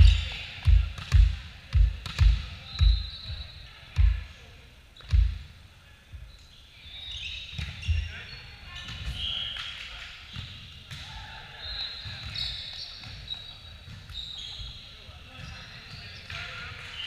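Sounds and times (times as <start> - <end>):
shoe squeak: 2.7 - 3.6, 6.8 - 9.7, 11.6 - 17.0.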